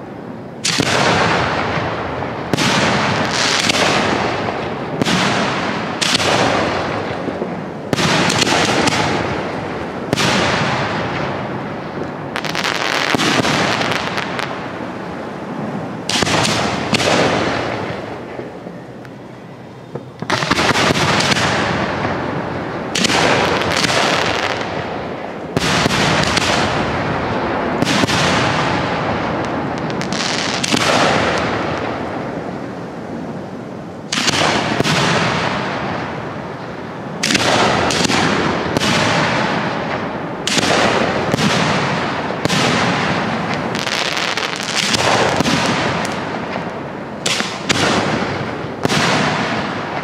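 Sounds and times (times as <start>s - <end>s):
firework shells bursting: 16.0s - 18.8s.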